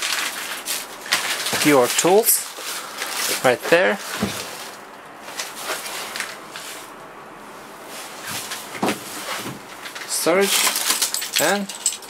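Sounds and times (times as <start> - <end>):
plastic wrapping rustling: 0.0 - 7.0, 7.8 - 12.0.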